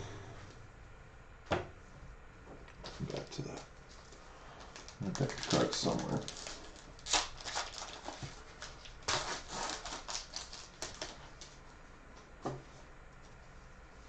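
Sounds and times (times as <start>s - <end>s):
foil wrapper crinkling: 3.0s - 11.6s.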